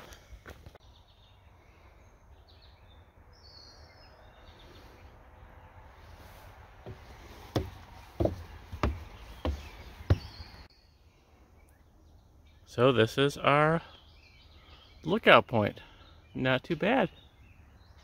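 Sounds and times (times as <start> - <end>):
outdoor background noise: 0.0 - 18.0
bird chirps: 0.8 - 6.4, 7.9 - 18.0
footsteps on wooden steps: 6.8 - 10.7.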